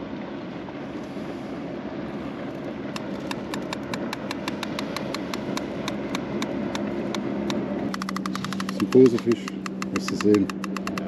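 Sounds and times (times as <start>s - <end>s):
low steady hum: 0.0s - 11.0s
fishing reel ticking: 7.9s - 11.0s.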